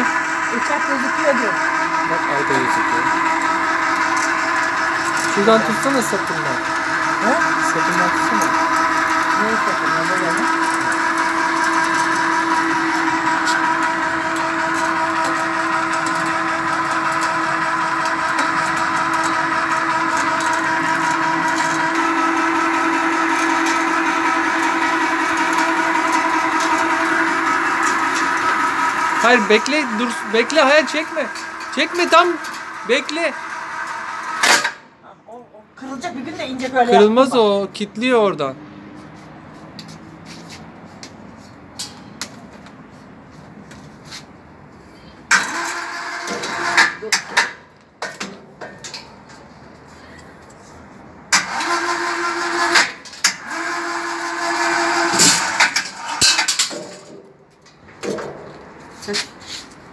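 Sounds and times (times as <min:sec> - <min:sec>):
electric winch whining: 0:00.0 - 0:34.8, 0:45.3 - 0:47.6, 0:51.3 - 0:57.1
electric hoist running: 0:00.0 - 0:34.9, 0:45.2 - 0:47.7, 0:51.3 - 0:57.3.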